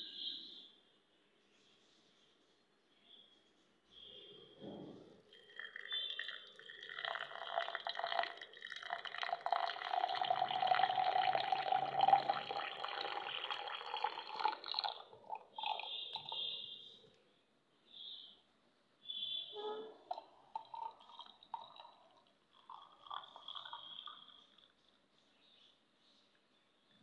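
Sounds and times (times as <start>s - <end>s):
water pouring into glass mug: 5.3s - 16.7s, 20.0s - 24.9s
water trickling: 5.3s - 16.7s, 19.6s - 25.0s.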